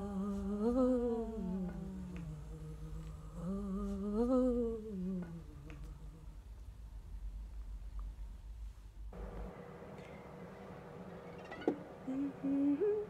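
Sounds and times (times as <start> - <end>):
woman humming: 0.0 - 6.5, 12.1 - 13.0.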